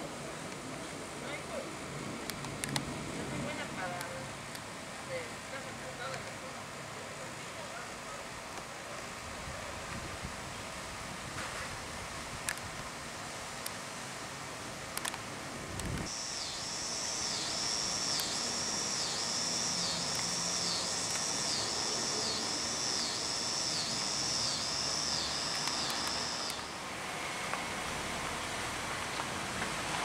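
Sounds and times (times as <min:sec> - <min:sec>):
cicada buzzing: 0:16.0 - 0:28.5.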